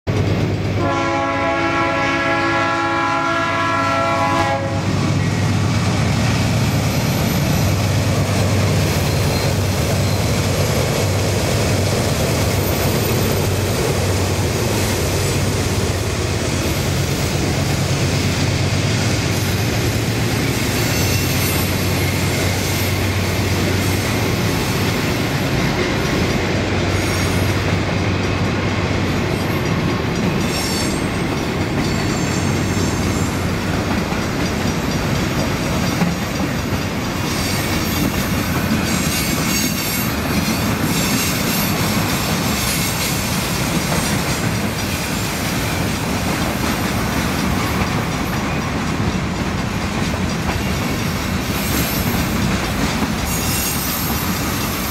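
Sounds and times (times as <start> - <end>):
freight cars rolling on rails: 0.1 - 54.9
train air horn chord: 0.8 - 5.0.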